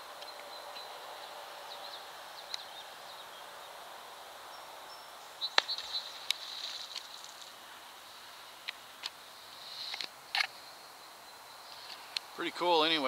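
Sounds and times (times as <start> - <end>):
birds chirping: 0.0 - 13.0
steady outdoor hiss: 0.0 - 13.0
beaver splashing water: 5.4 - 7.7.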